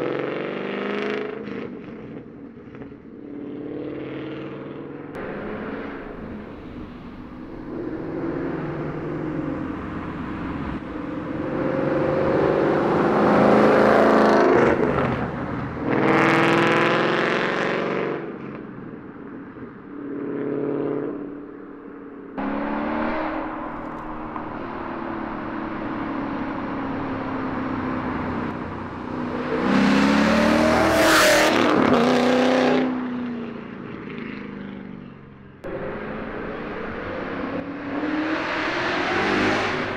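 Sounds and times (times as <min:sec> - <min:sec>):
loud car engine accelerating past: 0:05.2 - 0:18.4, 0:22.4 - 0:34.9, 0:35.6 - 0:39.9.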